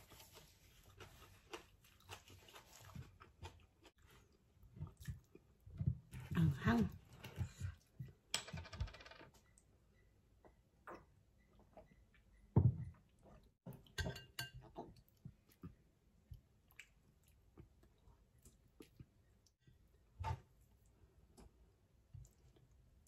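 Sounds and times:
soft chewing: 0.0s - 8.2s, 14.6s - 23.0s
glass bottle and spoon clinking: 14.0s - 14.7s.

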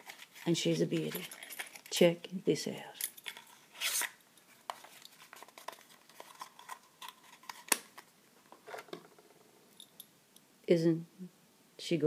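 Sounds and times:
cardboard rustling: 3.4s - 9.0s.

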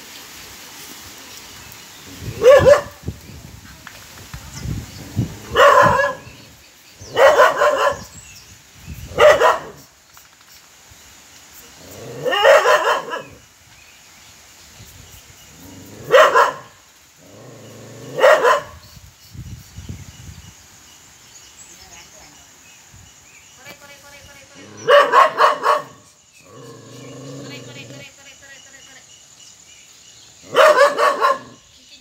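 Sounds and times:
dog barking: 2.4s - 3.0s, 5.5s - 6.4s, 7.1s - 8.1s, 9.1s - 9.9s, 12.2s - 13.4s, 16.1s - 16.8s, 18.1s - 18.8s, 24.8s - 26.1s, 30.5s - 31.6s.

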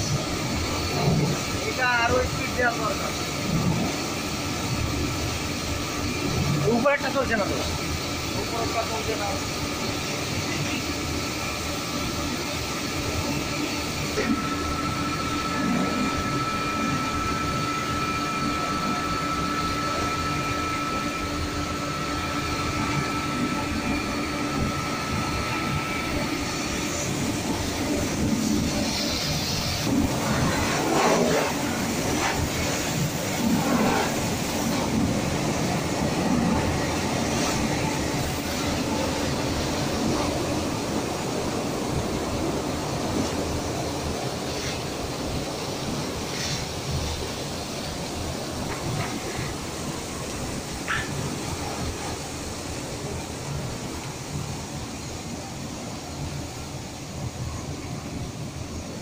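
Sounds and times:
thin steady whine: 0.0s - 59.0s
water spraying and splashing: 26.2s - 41.1s, 43.0s - 55.2s.

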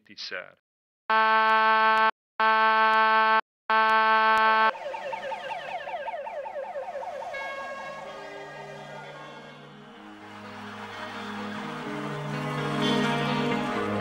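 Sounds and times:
fire engine siren yelping: 3.7s - 14.0s
music: 6.8s - 14.0s.

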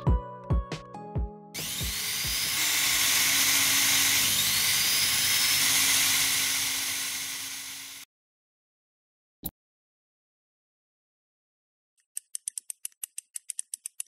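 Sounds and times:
music with a beat: 0.0s - 2.0s
rotary tool drilling wood: 1.6s - 8.1s.

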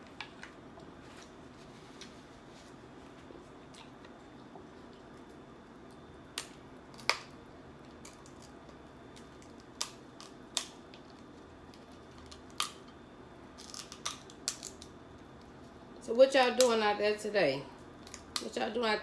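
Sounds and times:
crab shells cracking: 5.9s - 15.5s.

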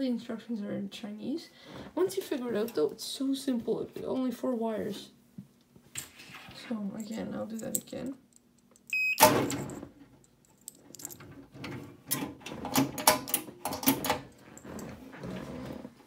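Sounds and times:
keypad reader beep: 8.9s - 9.3s
cash drawer opening clack: 9.2s - 9.8s, 11.1s - 14.3s
metal drawer clicks and rattles: 11.0s - 14.3s.

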